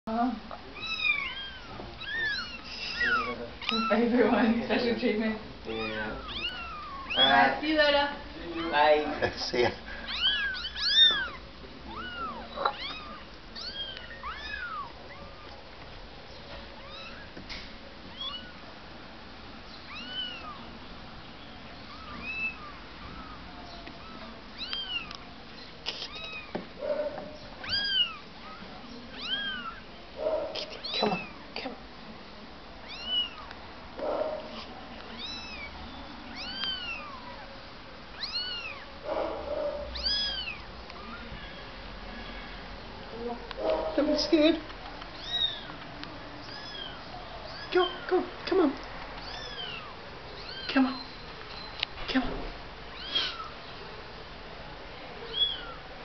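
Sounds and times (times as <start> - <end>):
kittens mewing: 0.6 - 4.1, 5.6 - 15.7, 16.7 - 17.4, 18.1 - 18.7, 19.8 - 20.7, 21.8 - 29.9, 30.5 - 31.6, 32.8 - 33.5, 34.4 - 39.0, 39.8 - 42.7, 45.0 - 45.8, 46.4 - 48.4, 49.2 - 51.1, 52.9 - 53.7, 55.3 - 55.9.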